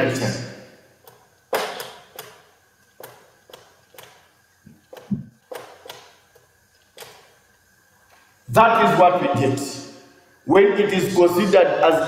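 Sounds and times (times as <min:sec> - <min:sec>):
marker tapping on whiteboard: 0:01.1 - 0:02.4, 0:03.0 - 0:07.2.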